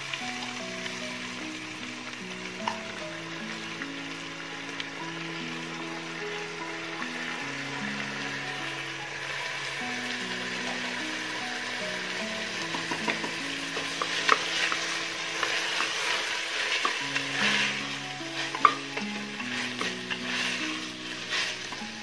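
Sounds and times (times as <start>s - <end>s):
food sizzling in pot: 0.0s - 22.0s
soft instrumental music: 0.0s - 22.0s
wooden spatula scraping pot: 6.0s - 22.0s.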